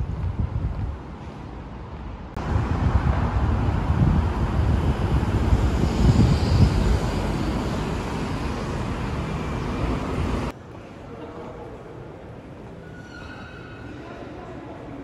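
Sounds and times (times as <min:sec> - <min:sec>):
wind buffeting microphone: 0:00.0 - 0:01.2, 0:01.8 - 0:10.5
traffic noise: 0:00.0 - 0:15.0.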